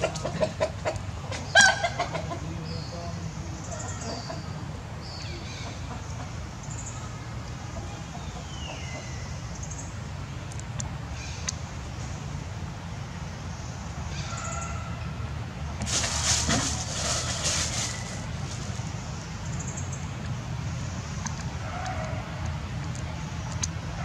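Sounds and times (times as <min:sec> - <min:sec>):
chickens clucking and cackling: 0:00.0 - 0:09.9, 0:14.0 - 0:20.0.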